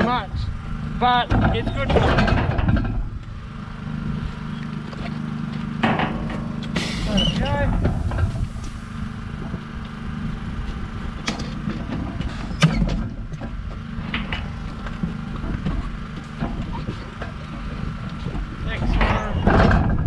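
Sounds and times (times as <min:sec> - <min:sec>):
steady low machine hum: 0:00.0 - 0:20.0
metal crate clanking and knocking: 0:01.0 - 0:03.2, 0:05.8 - 0:08.5, 0:11.3 - 0:17.7, 0:18.3 - 0:20.0.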